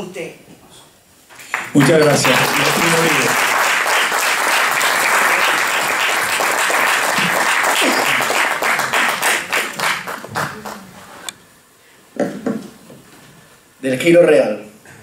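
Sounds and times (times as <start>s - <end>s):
audience applauding: 1.4s - 11.2s.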